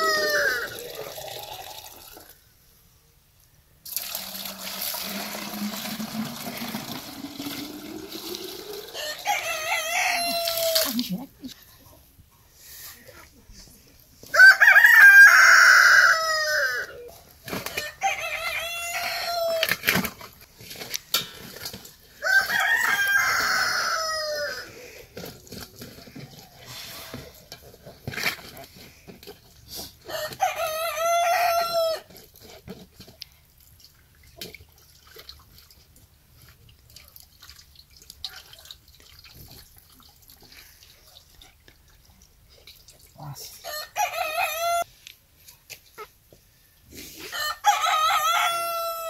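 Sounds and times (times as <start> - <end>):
rooster crowing: 0.0 - 0.9, 8.9 - 10.8, 14.3 - 17.1, 17.7 - 19.8, 22.2 - 24.7, 30.1 - 32.1, 43.7 - 44.9, 47.3 - 49.0
soft rooster calls: 0.0 - 1.5, 14.3 - 19.7, 43.6 - 44.9, 47.2 - 49.0.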